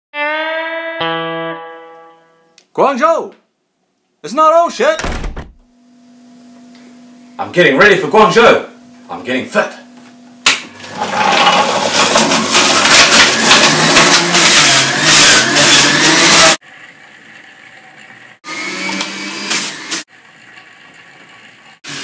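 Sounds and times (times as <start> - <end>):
juicer running: 10.0 - 22.0.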